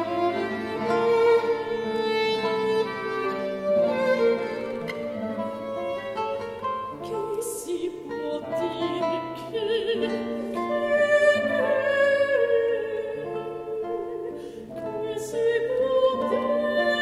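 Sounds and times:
held violin notes: 0.0 - 14.2
plucked guitar chords: 0.0 - 16.8
soprano singing with vibrato: 6.9 - 17.0.

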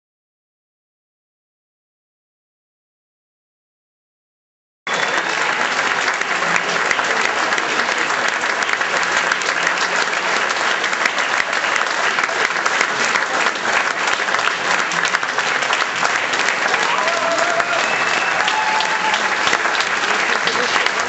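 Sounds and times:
audience applauding: 4.9 - 21.0.

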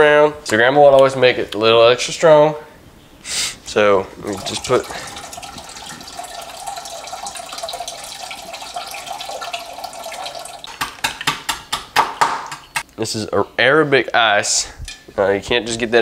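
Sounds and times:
beer pouring into metal pot: 4.2 - 10.7.

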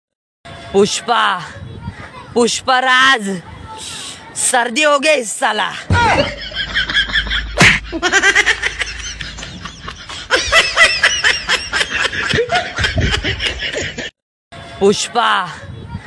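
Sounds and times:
person giggling: 7.2 - 14.1.

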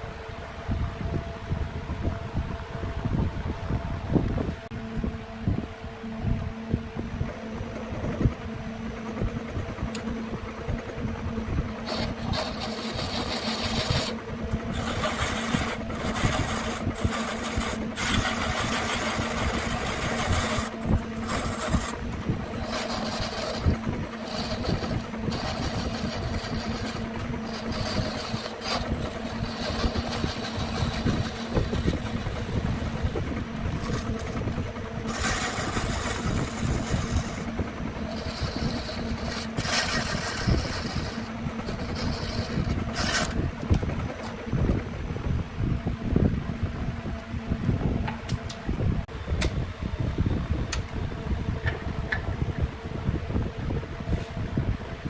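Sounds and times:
wood lathe motor hum: 6.5 - 44.8
chisel cutting spinning wood: 6.8 - 45.2.

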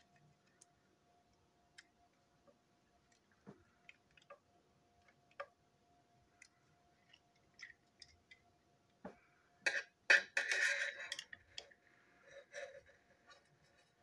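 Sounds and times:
plastic parts scraping and rattling: 10.2 - 11.8.

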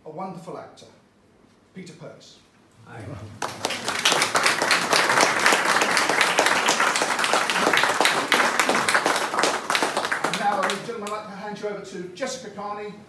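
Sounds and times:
people applauding: 2.8 - 11.2.

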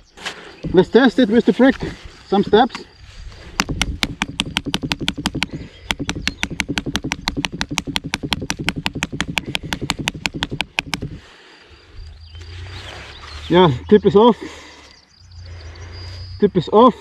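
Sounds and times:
knife tip striking brick: 3.6 - 11.2.

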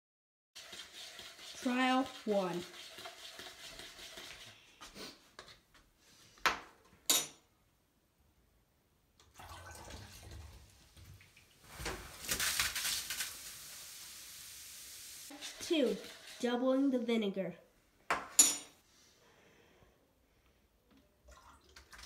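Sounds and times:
liquid pouring into plastic bottle: 9.2 - 11.2, 21.2 - 22.0
hissing gush of foam: 11.7 - 16.0.

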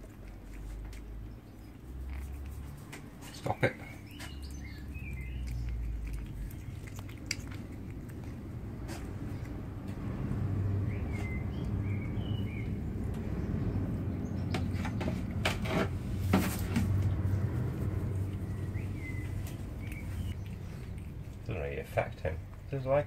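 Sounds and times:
faint bird chirps: 3.2 - 6.8, 10.9 - 12.8
knocks and scrapes on microphone: 14.5 - 17.1.

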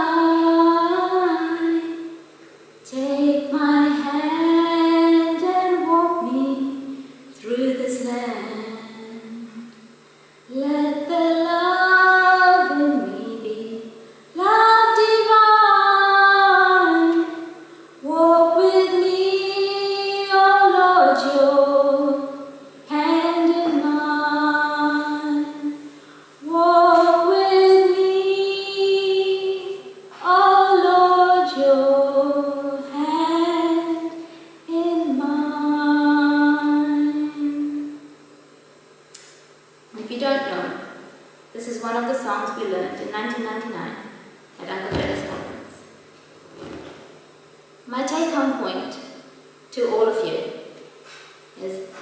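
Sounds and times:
woman singing unaccompanied: 0.0 - 2.2, 2.8 - 9.9, 10.5 - 38.1.

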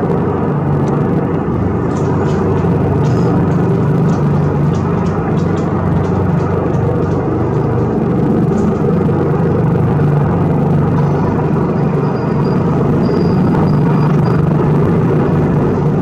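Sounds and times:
helicopter rotor and engine drone: 0.0 - 16.0
faint high whine: 0.2 - 16.0.

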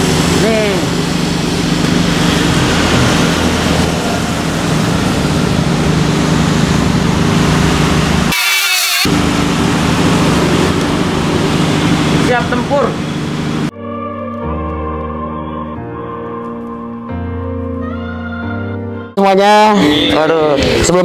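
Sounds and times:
car engine idling: 0.0 - 8.3, 9.1 - 13.7.

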